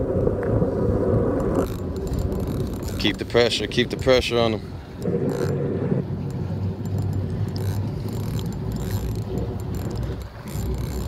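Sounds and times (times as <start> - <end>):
fishing reel ticking: 1.4 - 11.0
low rumble: 3.6 - 11.0.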